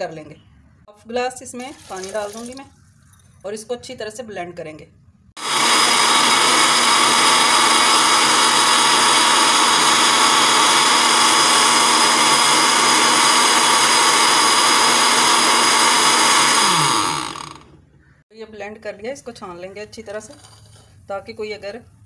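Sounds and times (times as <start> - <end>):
electric blender running: 5.4 - 17.8.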